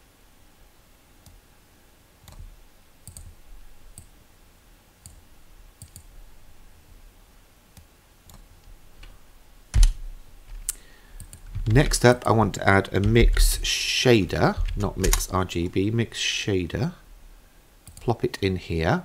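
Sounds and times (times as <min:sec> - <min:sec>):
computer mouse clicking: 0:02.2 - 0:04.1, 0:05.0 - 0:05.2, 0:05.8 - 0:06.1, 0:07.8 - 0:09.2, 0:09.8 - 0:12.3, 0:12.9 - 0:13.5, 0:14.6 - 0:15.3, 0:17.8 - 0:18.1.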